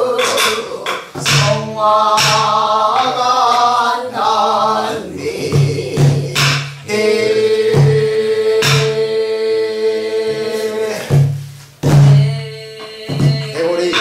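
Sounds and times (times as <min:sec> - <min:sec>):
barrel drum strokes: 0:00.0 - 0:03.8, 0:05.4 - 0:09.1, 0:10.3 - 0:14.0
folk singing: 0:00.0 - 0:14.0.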